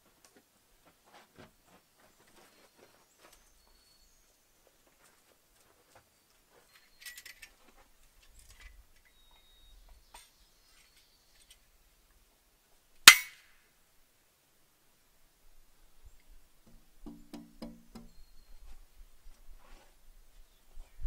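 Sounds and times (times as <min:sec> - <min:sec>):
sharp metallic clack with ring: 0:13.1 - 0:13.4.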